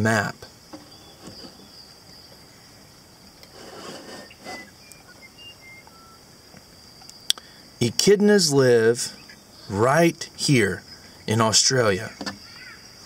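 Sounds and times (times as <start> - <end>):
steady high-pitched hiss: 0.0 - 13.0
plastic globe handling sounds: 0.7 - 1.7, 3.4 - 4.8.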